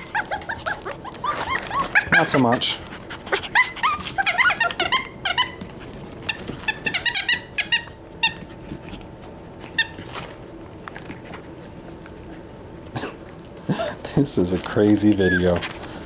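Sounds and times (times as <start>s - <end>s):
puppies whimpering: 0.0s - 8.3s, 14.7s - 16.0s.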